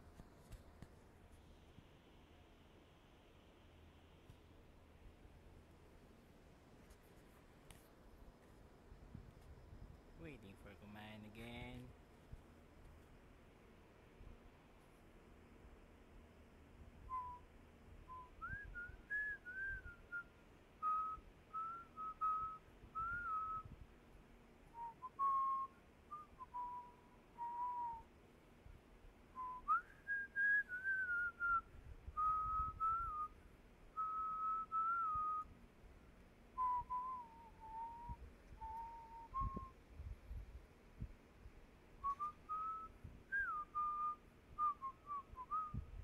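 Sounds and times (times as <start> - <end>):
person whistling a tune: 18.1 - 20.2, 20.8 - 23.6, 24.8 - 28.0, 29.4 - 31.6, 34.0 - 35.4, 36.6 - 39.7, 42.0 - 45.8.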